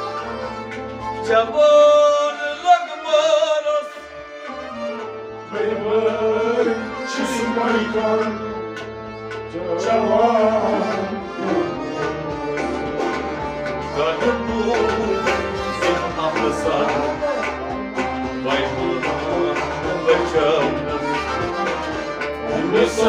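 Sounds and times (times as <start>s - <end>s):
harmonium: 0.0s - 23.0s
string instruments: 0.0s - 23.0s
person singing: 5.4s - 8.8s, 9.4s - 23.0s.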